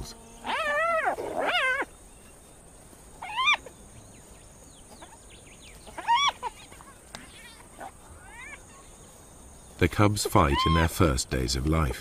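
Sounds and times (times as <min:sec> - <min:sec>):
hyenas calling: 0:00.0 - 0:02.0, 0:03.2 - 0:03.8, 0:04.8 - 0:08.9, 0:10.1 - 0:11.2.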